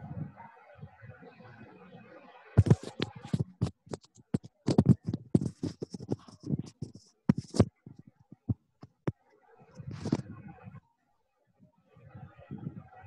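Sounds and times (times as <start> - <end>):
rapid clicking and knocking: 2.6 - 9.2.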